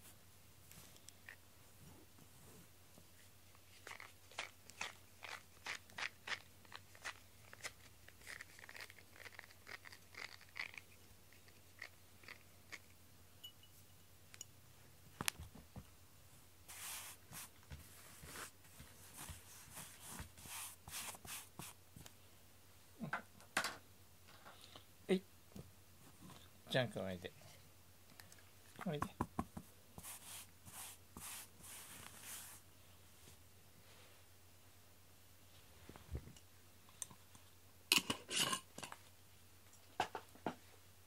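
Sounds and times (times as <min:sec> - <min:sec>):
brush strokes through cat fur: 0:16.7 - 0:21.8, 0:30.0 - 0:34.3.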